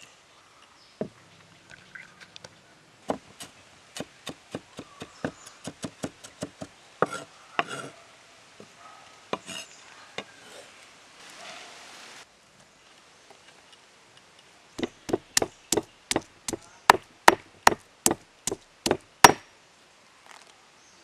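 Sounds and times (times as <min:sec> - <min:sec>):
cleaver chopping on wooden board: 0:03.1 - 0:07.8, 0:14.8 - 0:19.4
blade scraping across board: 0:05.5 - 0:08.0, 0:09.4 - 0:09.8.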